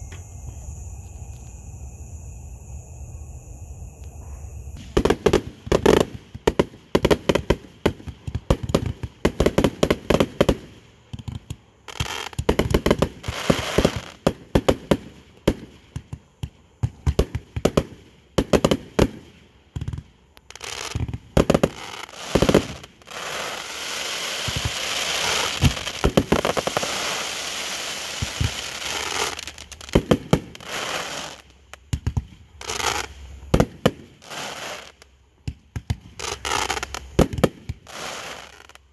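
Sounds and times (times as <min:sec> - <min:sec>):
firecrackers popping and crackling: 0:04.8 - 0:38.9.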